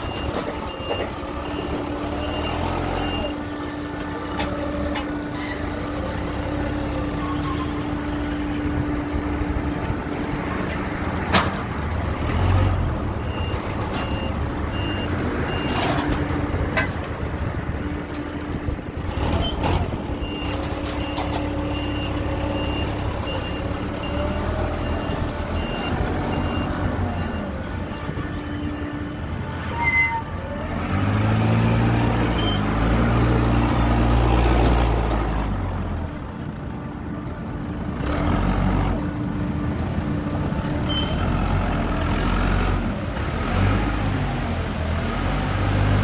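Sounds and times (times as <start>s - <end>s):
reversing beeper: 0.0s - 9.2s
forklift engine rumble: 0.0s - 46.0s.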